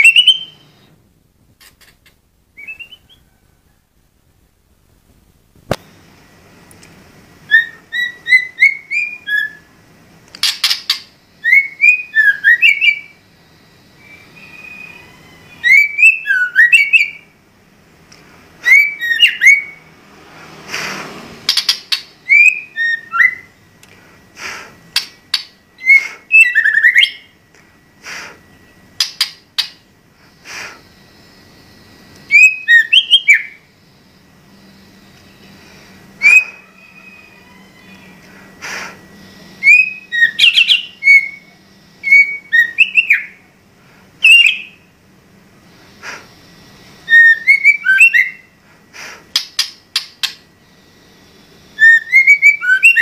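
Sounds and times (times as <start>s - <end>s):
bird singing whistled phrases: 0.0s - 0.7s, 2.6s - 3.2s, 7.5s - 9.7s, 10.4s - 13.2s, 14.0s - 17.3s, 18.6s - 19.9s, 21.5s - 23.5s, 25.0s - 27.3s, 32.3s - 33.6s, 36.2s - 38.2s, 39.6s - 43.4s, 44.2s - 44.8s, 47.0s - 48.5s, 51.8s - 53.0s.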